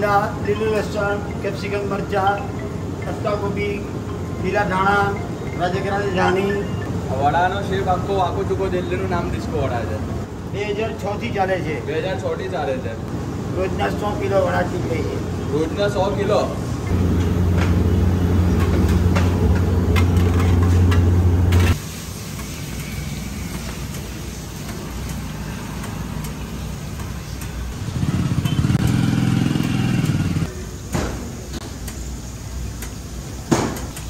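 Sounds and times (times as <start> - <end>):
motor engine humming: 16.8 - 21.8.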